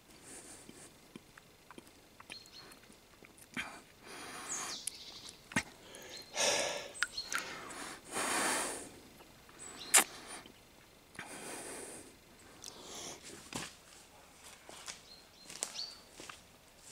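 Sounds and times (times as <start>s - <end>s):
sharp clicks and slurps: 0.6s - 4.0s, 9.9s - 11.3s
heavy breaths through the nose: 3.6s - 4.9s, 5.7s - 10.5s, 11.2s - 13.5s.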